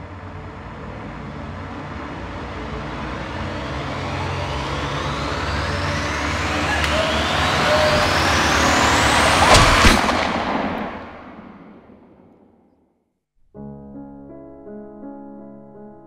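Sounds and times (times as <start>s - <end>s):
noisy riser with whistling sweeps: 0.1s - 12.3s
sharp impact hit: 7.2s - 12.6s
soft piano music: 13.4s - 16.0s.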